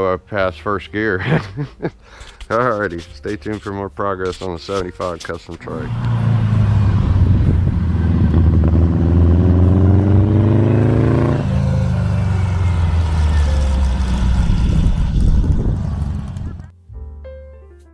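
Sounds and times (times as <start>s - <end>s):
trike engine accelerating: 5.6s - 16.7s.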